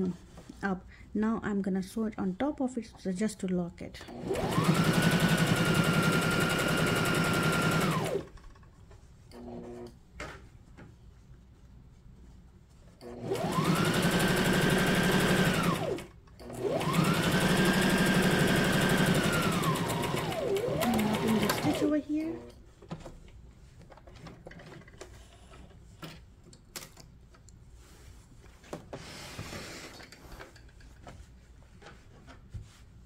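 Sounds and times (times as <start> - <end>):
electric sewing machine stitching: 4.1 - 8.3, 13.0 - 22.5.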